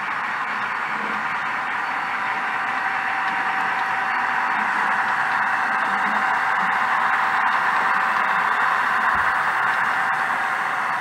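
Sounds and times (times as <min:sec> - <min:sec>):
model diesel locomotive sound: 0:00.0 - 0:11.0
thin steady whine: 0:00.0 - 0:11.0.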